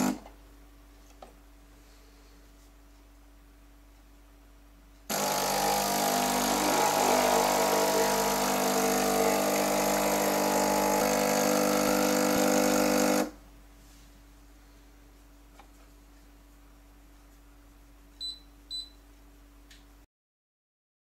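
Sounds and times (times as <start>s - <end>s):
coffee machine pump humming: 5.1s - 13.4s.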